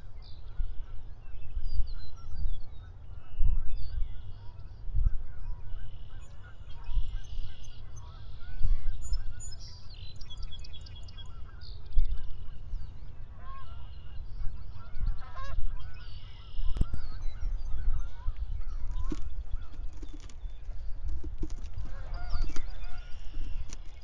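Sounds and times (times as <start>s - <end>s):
birds chirping and calling: 0.0s - 24.0s
low uneven rumble: 11.2s - 24.0s.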